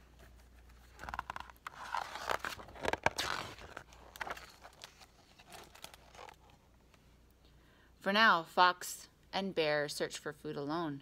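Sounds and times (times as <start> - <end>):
paper pages rustling and crackling: 0.0 - 6.6.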